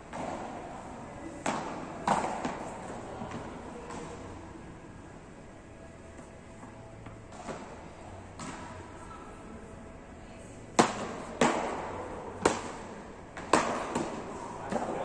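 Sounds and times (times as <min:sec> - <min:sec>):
paddles striking ball with echo: 0:01.3 - 0:04.2, 0:07.3 - 0:08.9, 0:10.7 - 0:15.0.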